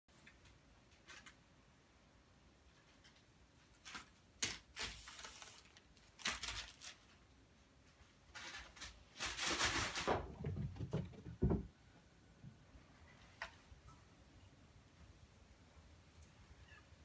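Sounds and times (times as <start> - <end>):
cats rustling crumpled paper: 2.7 - 10.4.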